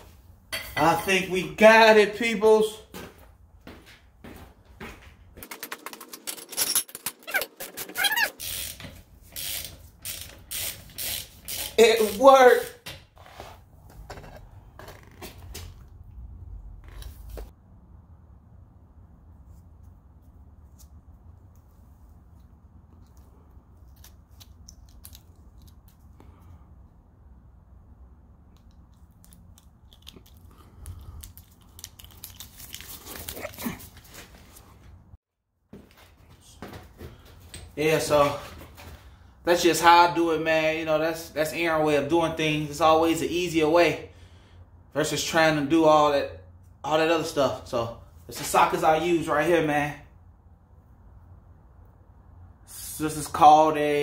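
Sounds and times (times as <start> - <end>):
short squeals: 6.7 - 11.8
ratchet wrench clicking: 8.4 - 11.8.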